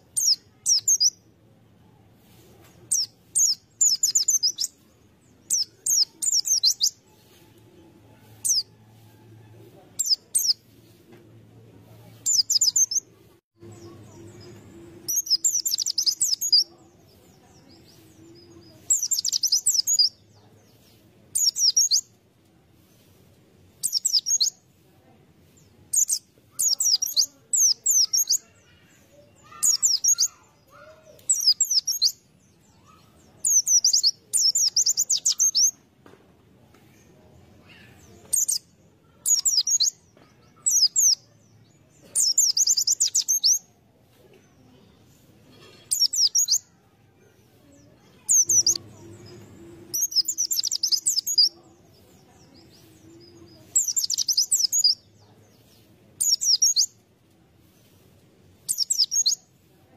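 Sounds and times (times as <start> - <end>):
bird twittering song: 0.1 - 1.2, 2.6 - 7.0, 12.2 - 22.1, 23.7 - 24.6, 25.6 - 35.8, 36.9 - 43.8, 45.8 - 46.7, 47.7 - 57.0, 58.6 - 59.4.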